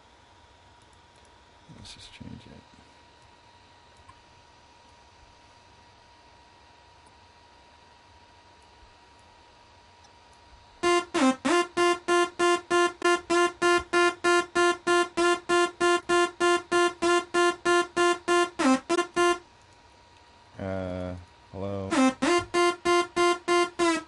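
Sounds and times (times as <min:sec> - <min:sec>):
repeated bright synthesizer note: 0:10.8 - 0:19.4, 0:21.9 - 0:24.0.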